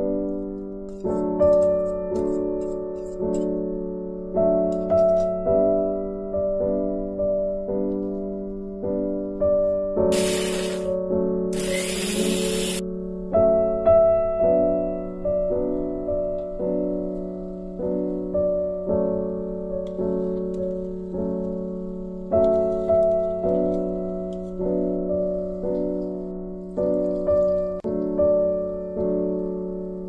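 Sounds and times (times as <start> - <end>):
slow piano music: 0.0 - 30.0
mixer grinder running: 10.1 - 10.9, 11.6 - 12.8.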